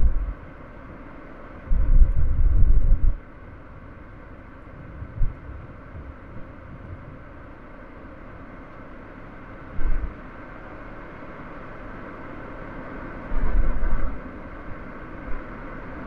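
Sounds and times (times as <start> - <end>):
low rumbling thumps: 0.0 - 0.4, 1.7 - 3.2, 4.7 - 7.3, 9.7 - 10.2
car road and engine noise: 0.0 - 16.0.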